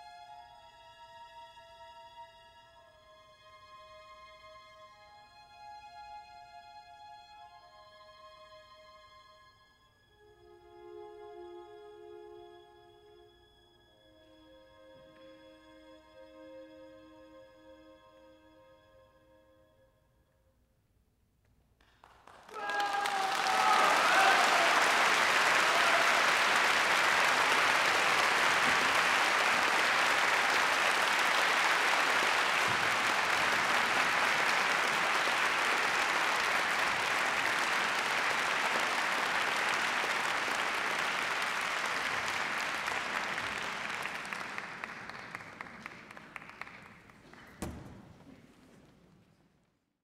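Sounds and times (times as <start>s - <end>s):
audience applauding: 21.8s - 48.4s
people calling out: 22.5s - 28.8s.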